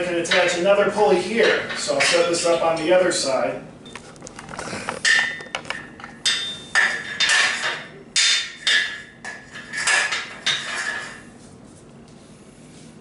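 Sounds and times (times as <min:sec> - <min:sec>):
metal pegs clanking into rack: 0:05.0 - 0:11.2.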